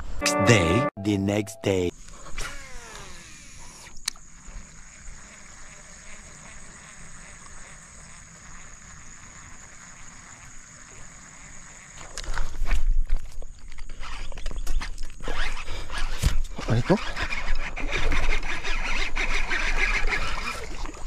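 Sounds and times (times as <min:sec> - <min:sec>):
high-pitched insect drone: 0:02.2 - 0:14.5.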